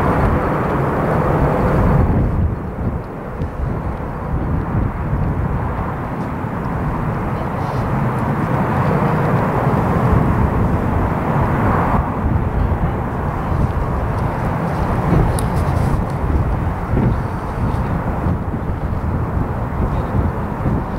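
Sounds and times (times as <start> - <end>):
distant jet engines: 0.0 - 20.9.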